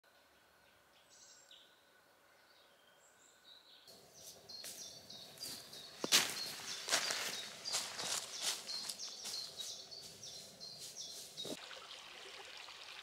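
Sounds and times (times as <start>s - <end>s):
small birds chirping: 0.7s - 11.6s
footsteps in dry leaves: 3.9s - 11.6s.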